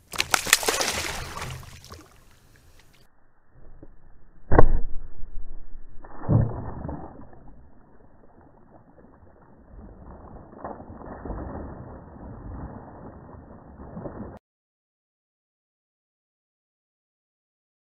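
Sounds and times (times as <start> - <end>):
fish thrashing in water: 0.0 - 2.4, 5.9 - 14.4
harpoon smacking water: 0.0 - 2.9
water splashing: 0.0 - 3.1, 4.5 - 14.4.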